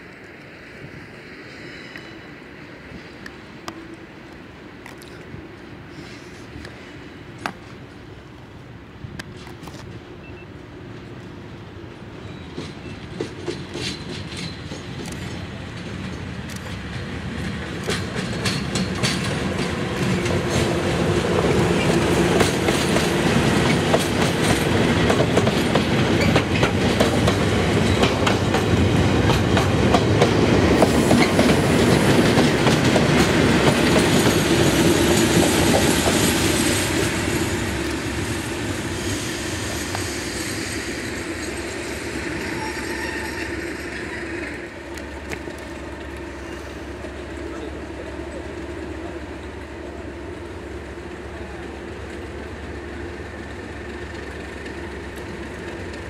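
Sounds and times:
diesel locomotive: 0.0 - 56.0
train wagons clattering over rails: 12.0 - 56.0.

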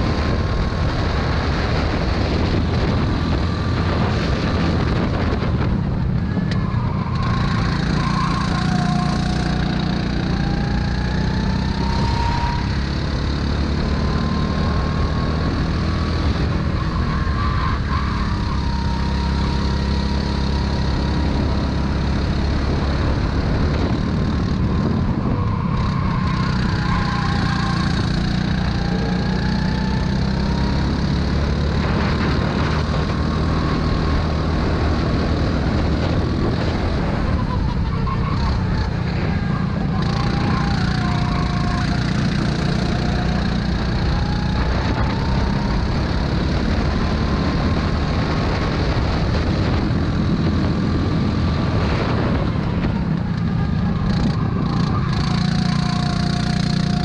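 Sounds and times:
go-kart engine racing: 0.0 - 57.0.

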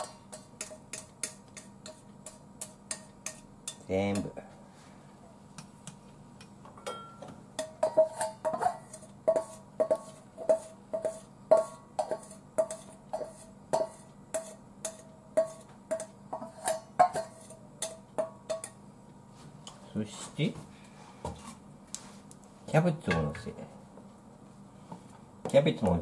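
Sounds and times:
metal bowl ringing clink: 6.8 - 8.4.

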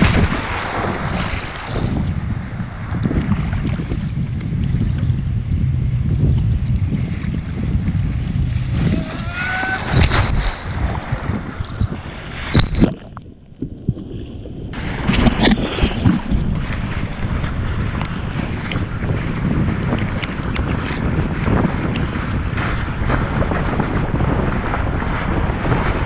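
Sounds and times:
water splashes: 0.0 - 5.0, 8.4 - 23.4
wind buffeting microphone: 0.0 - 26.0
rising whistle: 8.9 - 10.7.

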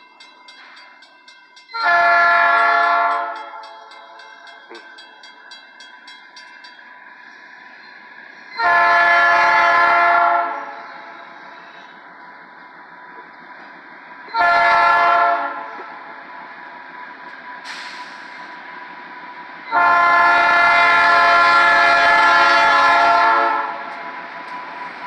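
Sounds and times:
locomotive air horn blasts: 1.8 - 3.6, 8.6 - 10.8, 14.4 - 15.7, 19.7 - 23.8.

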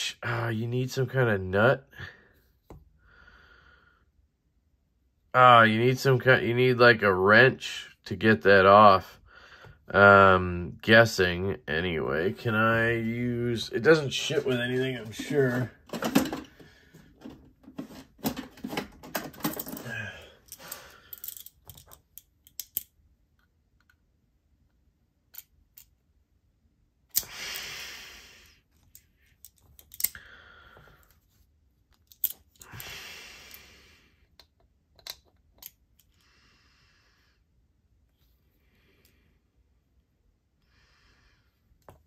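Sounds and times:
breathy exhales: 30.1 - 31.1, 32.6 - 34.2.

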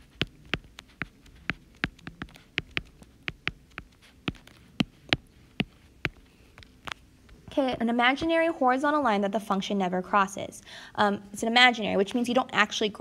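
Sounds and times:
stylus tapping on glass screen: 0.0 - 7.0.

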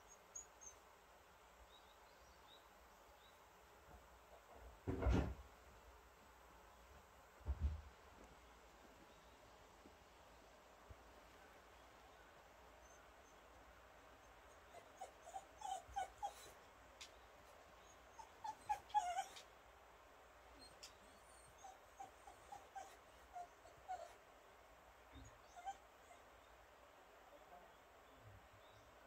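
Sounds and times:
dog whimpering: 14.5 - 16.6, 17.8 - 19.5, 20.6 - 24.2, 25.2 - 26.3.

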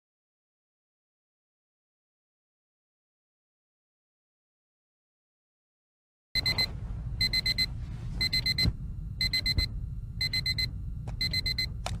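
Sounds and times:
electronic timer alarm beeping: 6.4 - 12.0
low rumble: 6.4 - 12.0.

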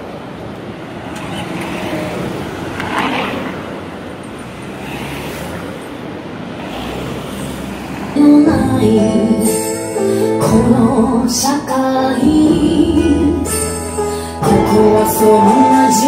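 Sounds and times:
rush of passing cars: 0.0 - 12.3.

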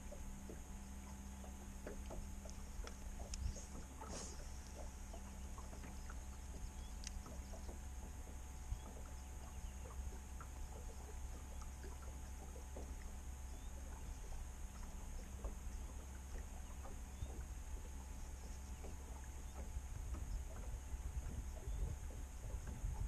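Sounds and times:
faint steady tone: 0.0 - 23.0
faint ticks and taps: 0.0 - 23.0
low hum: 0.0 - 23.0.

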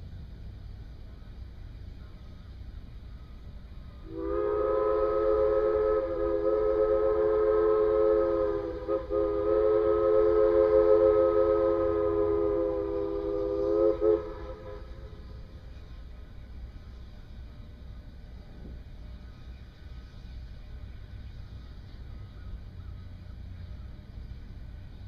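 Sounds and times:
steam locomotive chime whistle: 3.9 - 15.8.

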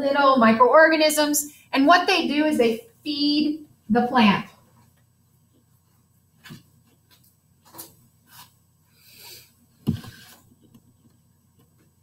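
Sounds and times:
loud thump: 9.8 - 10.2.

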